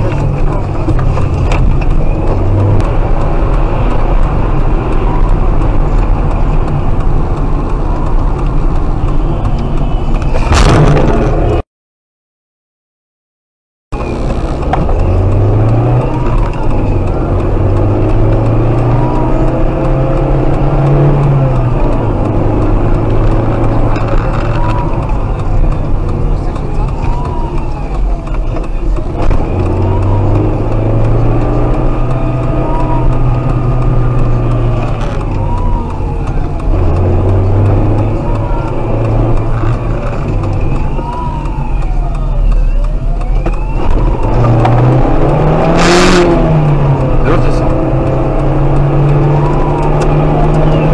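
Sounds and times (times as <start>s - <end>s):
car engine accelerating: 0.0s - 11.6s, 13.9s - 50.9s
police siren wailing: 14.0s - 50.9s.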